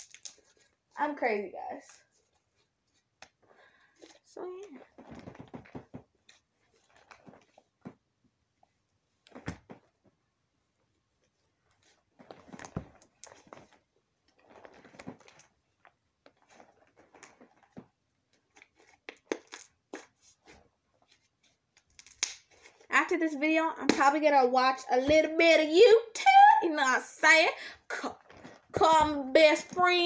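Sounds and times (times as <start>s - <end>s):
slime squishing by hand: 11.0s - 22.9s.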